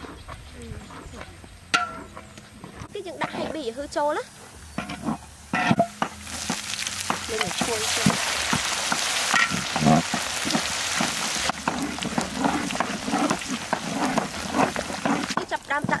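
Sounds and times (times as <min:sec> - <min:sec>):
noodles sizzling in a hot pan: 0:05.2 - 0:16.0
utensil scraping and tossing: 0:06.3 - 0:16.0.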